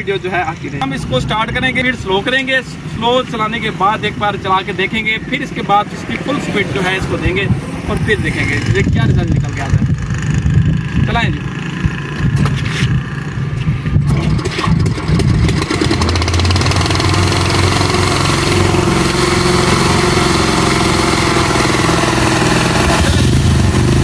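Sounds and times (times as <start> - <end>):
small generator engine running: 14.1 - 24.0.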